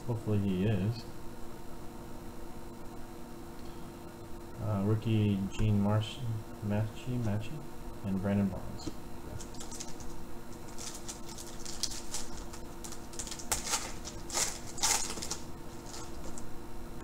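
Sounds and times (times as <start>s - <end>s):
foil wrapper tearing and crinkling: 9.4s - 16.4s.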